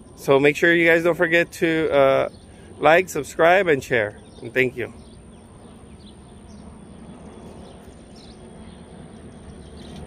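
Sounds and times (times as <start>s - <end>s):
outdoor background noise: 0.0s - 10.0s
faint bird chirps: 4.1s - 10.0s.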